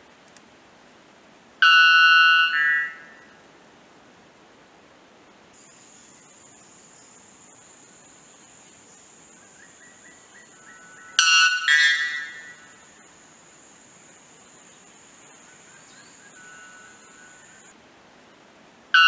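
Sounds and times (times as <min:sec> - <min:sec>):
faint background hiss: 0:00.0 - 0:19.0
bellbird ringing call: 0:01.6 - 0:03.1, 0:11.0 - 0:12.8
thin high-pitched whine: 0:05.6 - 0:17.8.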